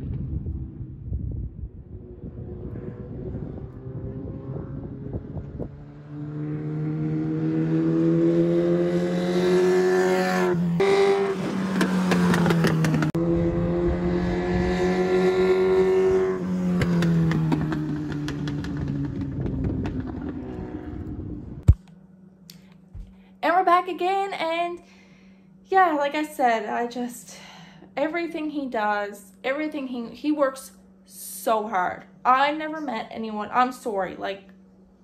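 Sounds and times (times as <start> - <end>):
race car engine passing: 1.6 - 21.6.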